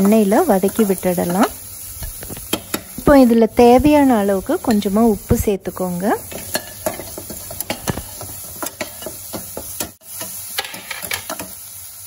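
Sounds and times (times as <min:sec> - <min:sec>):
food sizzling in oil: 0:00.0 - 0:12.0
spatula scraping a metal pan: 0:06.3 - 0:11.6.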